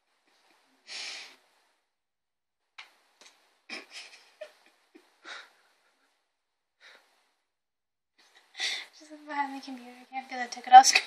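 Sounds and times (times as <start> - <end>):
soft puffs of breath: 0.8 - 1.6.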